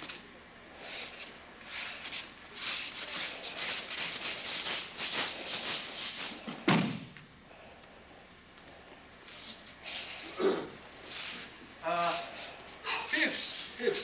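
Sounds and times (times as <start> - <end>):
feet and uniforms sliding on mat: 0.8 - 7.1, 11.0 - 14.0
body thudding onto mat: 6.6 - 7.1.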